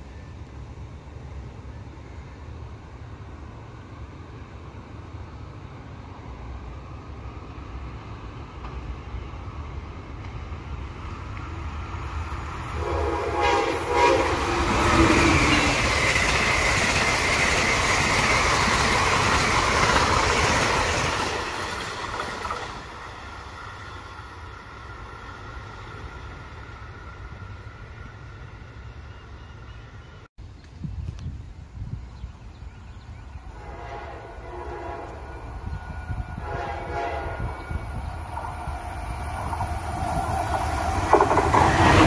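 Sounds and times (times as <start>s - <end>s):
passenger train rumbling past: 0.0s - 30.3s, 31.0s - 42.0s
train horn: 12.7s - 15.6s, 33.5s - 38.0s.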